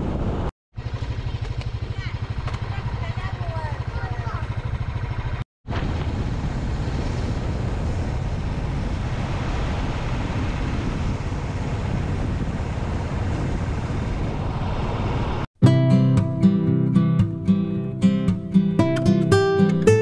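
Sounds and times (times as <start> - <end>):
wind rush on microphone: 0.0 - 0.5, 5.6 - 15.5
low road rumble: 0.0 - 15.5.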